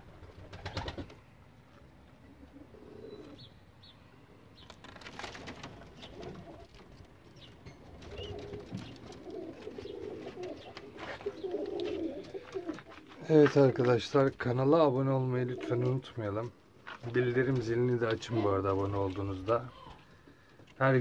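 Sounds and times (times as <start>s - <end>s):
pigeons cooing: 2.2s - 3.6s, 5.5s - 13.9s.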